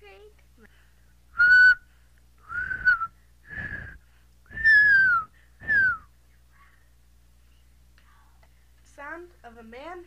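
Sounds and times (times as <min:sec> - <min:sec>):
person whistling bird call: 0:01.4 - 0:01.8, 0:02.4 - 0:06.1.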